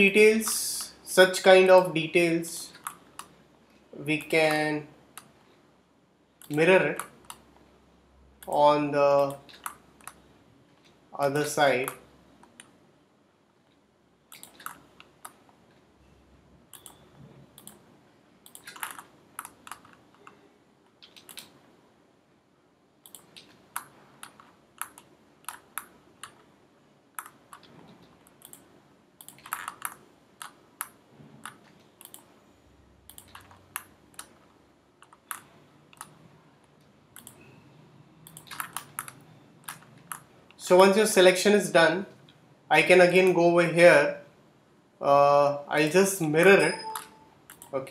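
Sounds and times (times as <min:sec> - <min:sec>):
mouse and keyboard clicking: 0:02.7 - 0:03.4, 0:06.4 - 0:07.5, 0:09.2 - 0:10.2, 0:14.3 - 0:15.4, 0:17.6 - 0:17.8, 0:18.4 - 0:21.6, 0:23.0 - 0:26.5, 0:27.2 - 0:32.3, 0:33.1 - 0:37.4, 0:38.2 - 0:40.3, 0:46.8 - 0:47.7.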